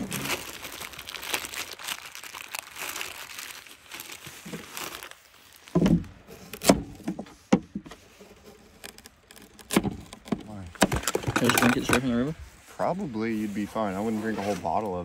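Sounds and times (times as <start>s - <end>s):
plastic bag crinkling: 0.0s - 6.1s.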